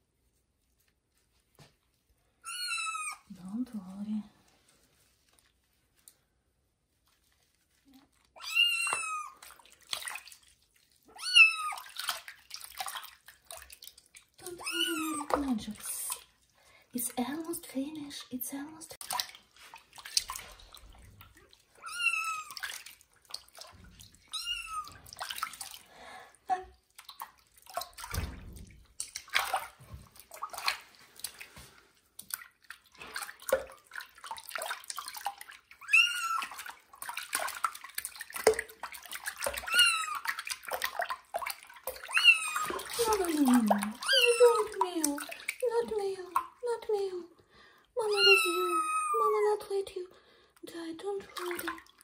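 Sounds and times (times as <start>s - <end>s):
kitten meowing: 2.5s - 3.3s, 8.4s - 9.4s, 11.1s - 11.9s, 14.6s - 15.4s, 21.8s - 22.6s, 24.3s - 25.0s, 35.8s - 36.5s, 39.6s - 40.2s, 42.1s - 43.0s, 43.6s - 44.8s, 48.1s - 49.4s
water splashing in sink: 7.1s - 50.0s, 50.6s - 52.0s.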